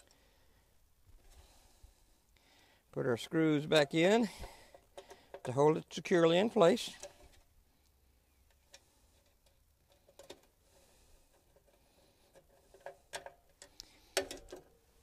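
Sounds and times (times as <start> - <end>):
screwdriver clicks and taps: 12.7 - 14.7.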